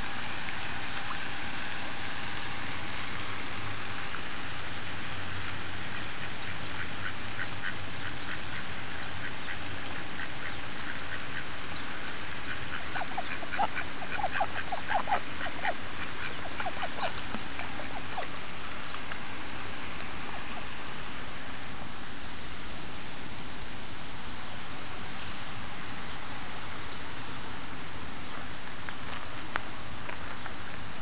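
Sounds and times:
steady hiss: 0.0 - 31.0
ducks quacking: 12.4 - 18.4.

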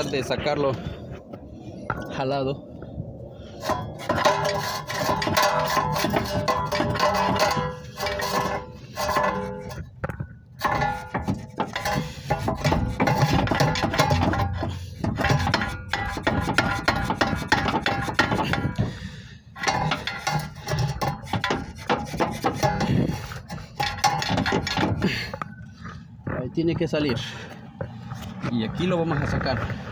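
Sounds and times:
screwdriver clanking on metal: 19.6 - 25.3.

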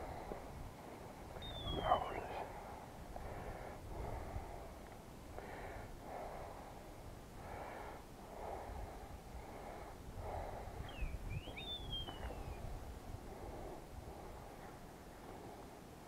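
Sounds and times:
thin whistled bird call: 1.4 - 2.4, 10.8 - 12.7
heavy breathing: 1.8 - 11.0, 13.1 - 16.0.

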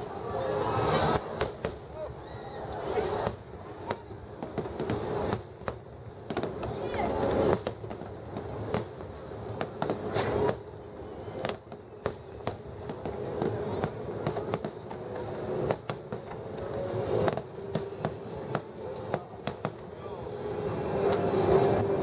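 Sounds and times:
continuous fireworks rumble: 0.0 - 22.0
fireworks bursting bangs: 0.8 - 2.2, 2.8 - 20.0.

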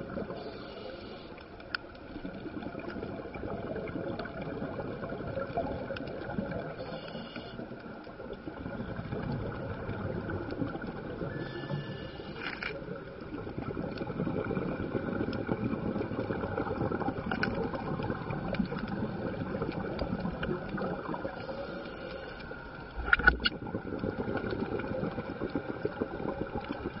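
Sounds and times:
underwater rushing rumble: 12.9 - 21.6, 22.9 - 27.0.

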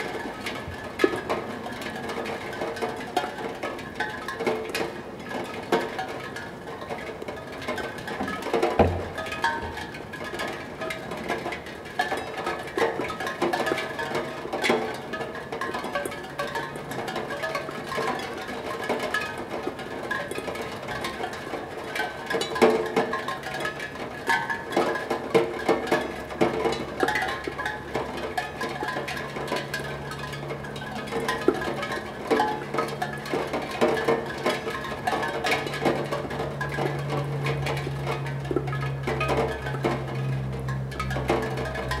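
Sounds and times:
raindrops ringing steel tongue drum: 0.0 - 42.0
low steady hum: 26.0 - 42.0.

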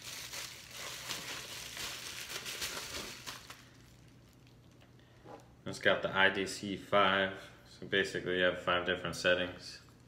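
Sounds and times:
bubble wrap crinkling: 0.0 - 4.9.

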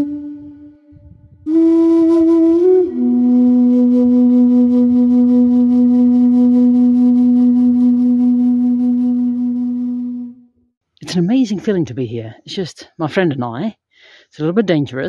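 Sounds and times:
flute-like long low note: 0.0 - 10.5.

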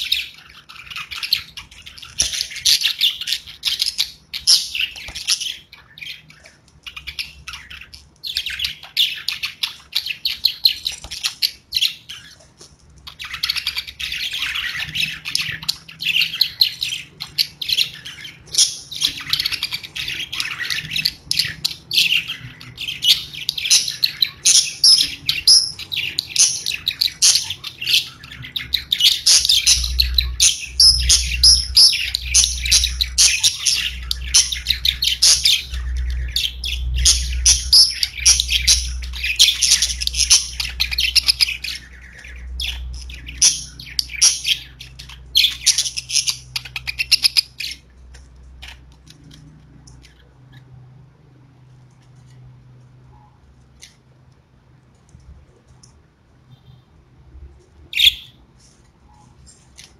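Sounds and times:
budgerigars chirping: 0.0 - 12.4, 13.1 - 47.9, 57.9 - 58.4
steady low hum: 12.4 - 53.7.

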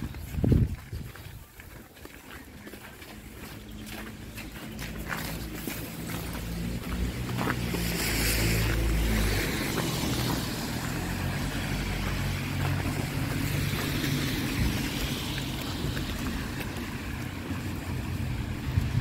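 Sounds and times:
wind rumble on microphone: 0.0 - 1.8, 6.4 - 19.0
traffic noise: 0.0 - 19.0.

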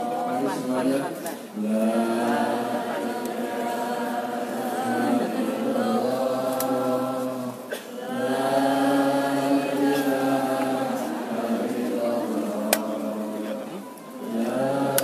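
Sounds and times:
men chanting in unison: 0.0 - 15.0.

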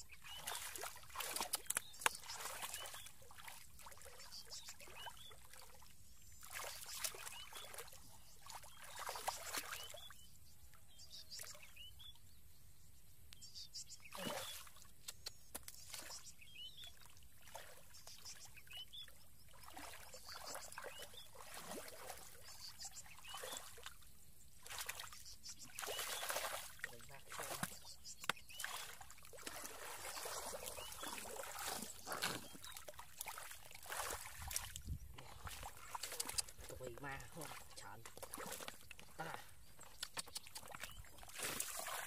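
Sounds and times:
hands splashing through muddy water: 0.2 - 5.7, 6.4 - 10.0, 19.6 - 24.0, 24.6 - 42.0.

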